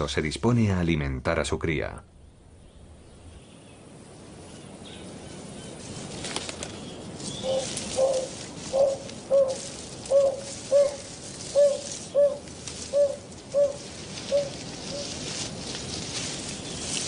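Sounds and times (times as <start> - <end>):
bird hooting: 7.3 - 15.3.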